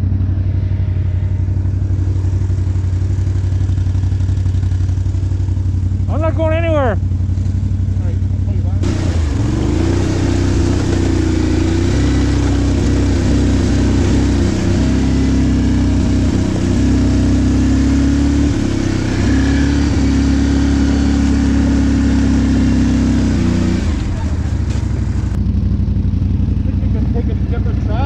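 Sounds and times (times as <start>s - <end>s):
atv engines running: 0.0s - 28.0s.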